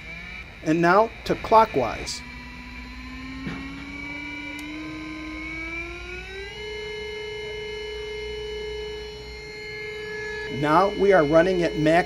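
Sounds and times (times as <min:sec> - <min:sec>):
electric motor whine rising: 0:00.0 - 0:12.0.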